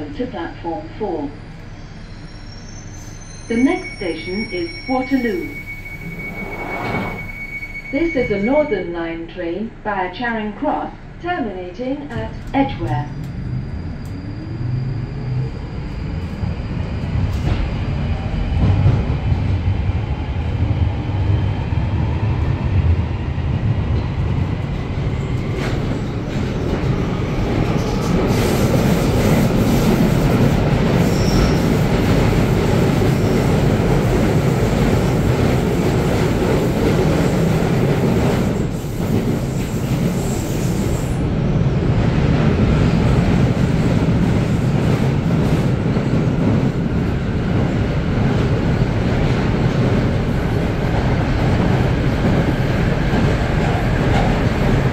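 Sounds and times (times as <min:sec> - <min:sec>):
train rumbling in tunnel: 0:00.0 - 0:54.9
wheel squeals: 0:01.8 - 0:08.5, 0:31.0 - 0:31.8.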